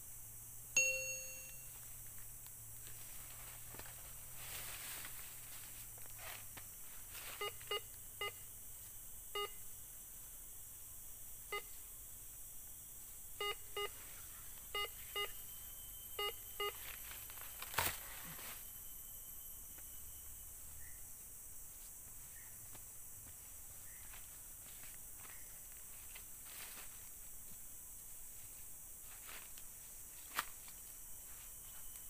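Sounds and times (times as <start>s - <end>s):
metal detector beeps: 0.8s - 1.8s, 7.4s - 8.4s, 9.4s - 9.6s, 13.4s - 14.0s, 14.6s - 20.4s.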